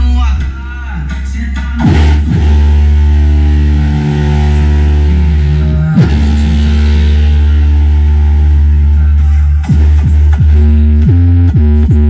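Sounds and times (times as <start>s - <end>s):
loud bass-heavy car stereo music: 0.0s - 12.0s
falling bass sweep: 1.7s - 12.0s.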